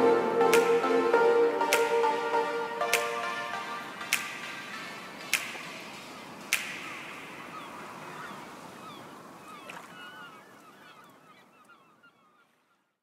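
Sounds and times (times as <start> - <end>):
background music: 0.0 - 7.4.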